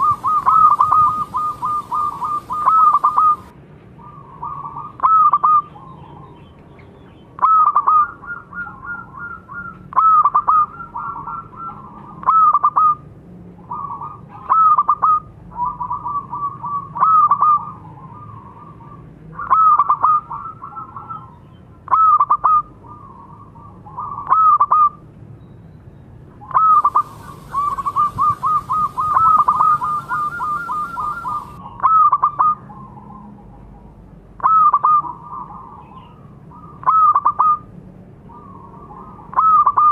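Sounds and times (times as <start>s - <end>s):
dove cooing: 0.0s - 6.3s, 7.4s - 13.0s, 26.5s - 33.2s.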